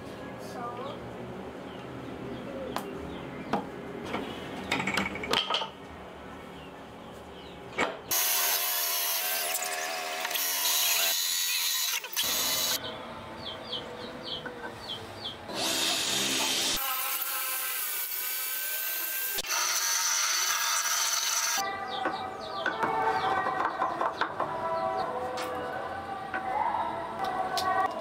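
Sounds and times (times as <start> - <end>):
loud power tool running: 8.1 - 12.8, 15.5 - 21.6.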